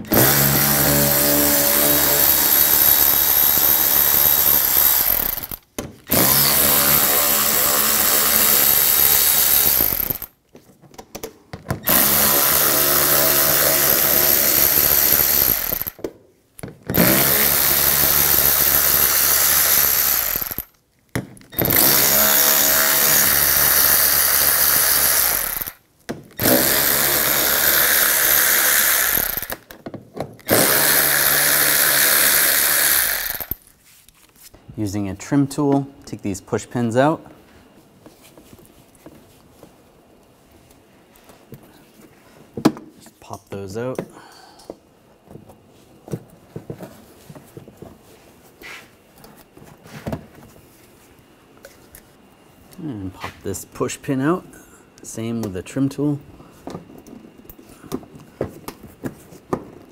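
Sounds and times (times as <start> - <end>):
electric ratchet motor running: 0.1 - 10.3, 11.8 - 16.0, 17.0 - 20.7, 21.6 - 25.8, 26.4 - 29.7, 30.5 - 33.6.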